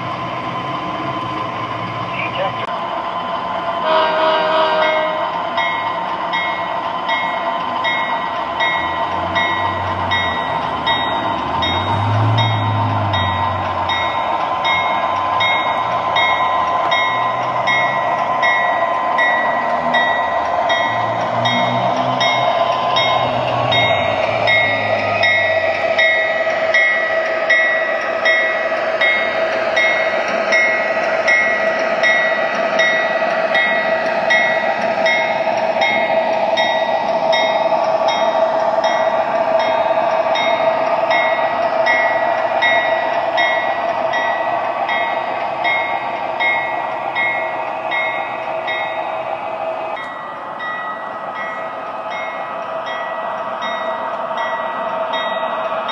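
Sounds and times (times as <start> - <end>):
diesel engine drone: 0.0 - 3.0
locomotive bell ringing: 3.8 - 49.2, 50.0 - 55.9.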